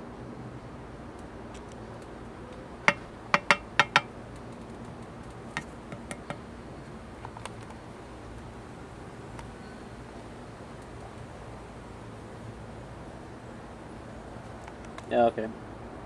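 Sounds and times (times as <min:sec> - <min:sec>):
wooden stick tapping on glass: 0:02.9 - 0:04.1, 0:05.6 - 0:06.4.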